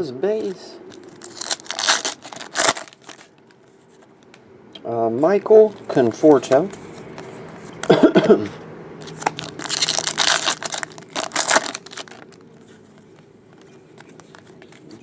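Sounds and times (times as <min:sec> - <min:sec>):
foil wrapper crinkling and tearing: 0:00.4 - 0:03.5, 0:09.0 - 0:12.5.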